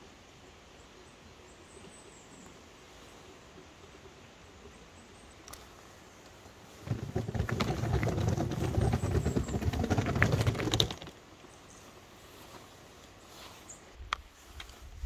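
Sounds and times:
suitcase wheels rattling over cobblestones: 0:06.8 - 0:11.2.

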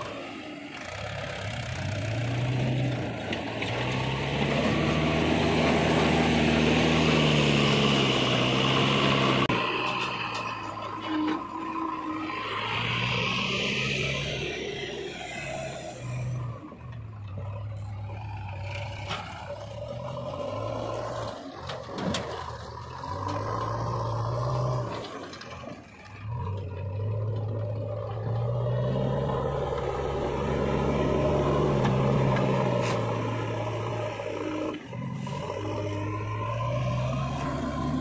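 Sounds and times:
diesel engine revving: 0:00.0 - 0:38.0.

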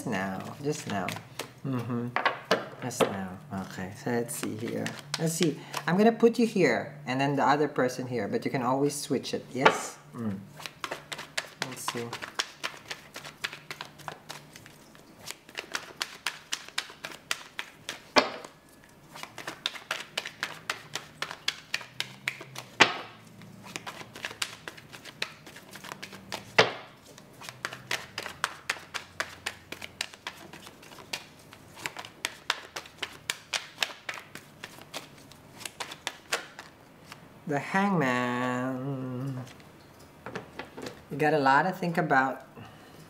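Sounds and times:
cards being shuffled by hand: 0:00.1 - 0:03.0, 0:04.3 - 0:06.0, 0:10.4 - 0:37.2.

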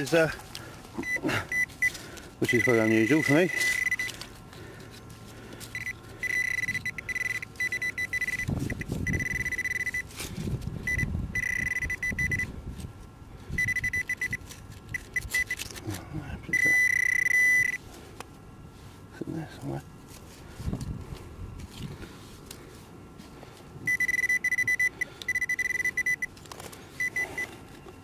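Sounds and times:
metal detector beeping: 0:01.0 - 0:04.2, 0:05.7 - 0:10.1, 0:10.8 - 0:12.6, 0:13.6 - 0:15.8, 0:16.5 - 0:17.8, 0:23.8 - 0:28.0.

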